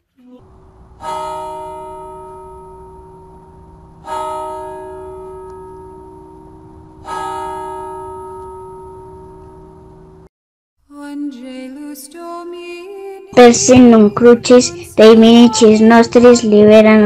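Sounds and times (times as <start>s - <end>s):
church bell ringing: 0.9s - 10.3s.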